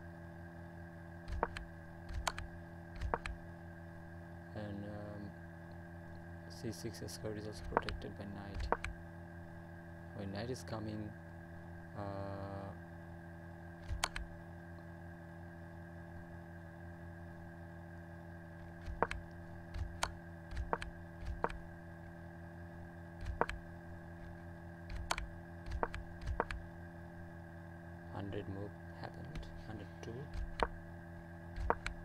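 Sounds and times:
low electrical hum: 0.0s - 32.0s
sharp computer clicks: 1.3s - 3.4s, 7.6s - 9.0s, 13.8s - 14.3s, 18.6s - 21.6s, 23.2s - 23.6s, 24.9s - 26.6s, 30.3s - 30.8s, 31.6s - 32.0s.

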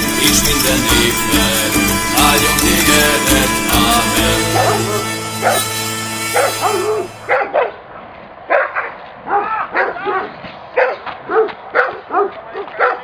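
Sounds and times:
song held chord: 0.0s - 7.3s
dog yelping barks: 6.4s - 7.8s, 8.5s - 13.0s.

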